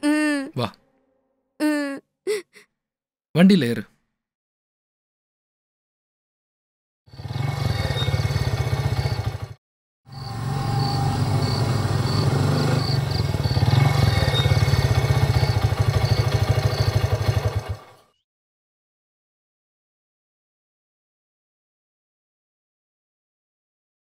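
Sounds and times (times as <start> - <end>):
motorcycle engine running: 7.1 - 18.2.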